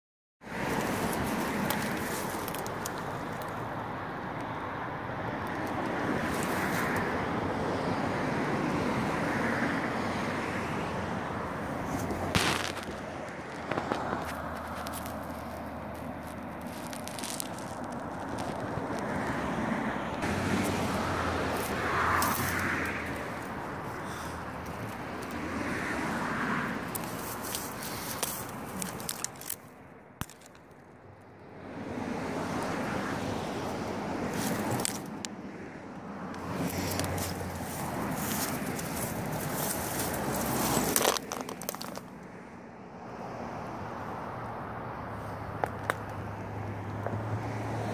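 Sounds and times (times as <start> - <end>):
distant road traffic: 0.4 - 47.9
wind: 0.4 - 47.9
twigs snapping: 0.6 - 3.7, 11.9 - 19.2, 21.5 - 23.7, 26.8 - 31.0, 34.3 - 35.3, 36.3 - 42.2
brush and twigs rustling: 0.6 - 3.8, 5.4 - 7.0, 11.6 - 19.3, 20.2 - 30.9, 34.2 - 35.3, 36.3 - 42.2.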